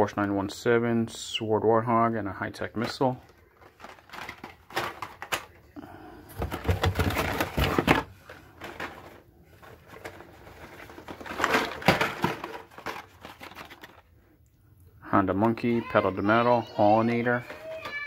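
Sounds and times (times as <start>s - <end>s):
plastic packs clacking: 2.6s - 14.3s
cards rustling: 2.8s - 14.3s.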